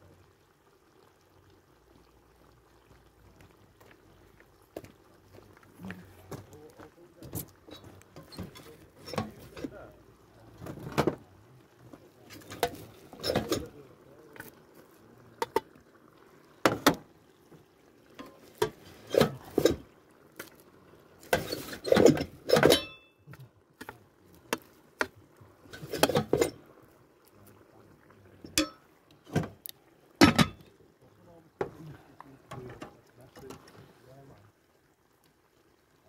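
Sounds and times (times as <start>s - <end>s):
metal mess tins clinking: 7.7s - 9.7s, 12.3s - 13.7s, 18.2s - 19.8s, 21.3s - 23.0s, 25.7s - 26.6s, 28.5s - 28.8s, 30.2s - 30.6s.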